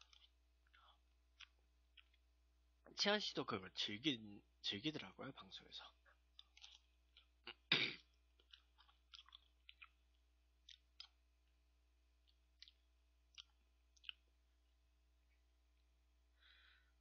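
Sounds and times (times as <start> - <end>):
man eating with wet mouth sounds: 0.0 - 2.3, 6.2 - 16.3
lip smacks: 6.3 - 11.2, 12.2 - 14.3.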